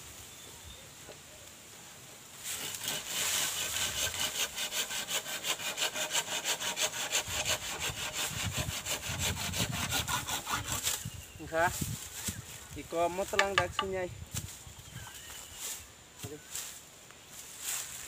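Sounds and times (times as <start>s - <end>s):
hand saw cutting bamboo: 2.4s - 11.0s, 13.3s - 13.9s.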